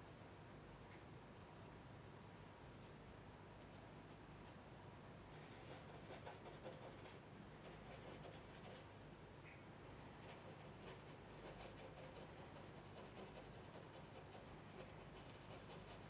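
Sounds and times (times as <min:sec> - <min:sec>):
low room hum: 0:00.0 - 0:16.0
pencil scratching on paper: 0:05.4 - 0:08.9, 0:10.2 - 0:16.0.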